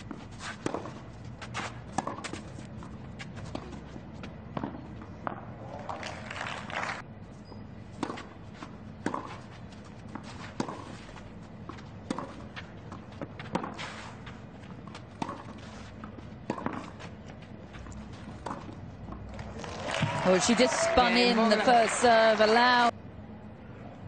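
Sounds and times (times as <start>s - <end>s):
racket hitting tennis ball: 0.0s - 3.8s, 8.0s - 8.3s, 9.0s - 11.1s, 11.7s - 17.2s, 17.9s - 19.5s.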